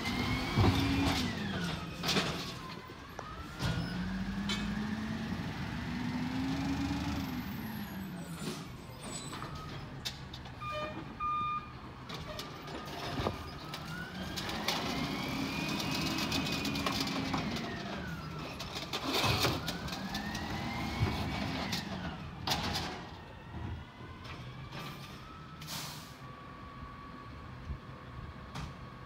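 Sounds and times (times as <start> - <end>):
garbage truck diesel engine revving: 0.0 - 2.0, 3.7 - 8.4, 14.1 - 22.1.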